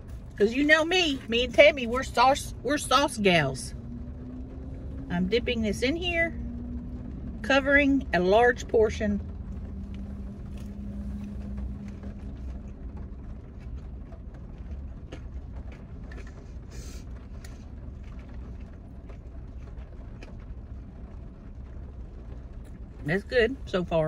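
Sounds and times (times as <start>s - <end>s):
low rumble in car cabin: 0.0s - 24.0s
person chewing food: 9.6s - 20.5s.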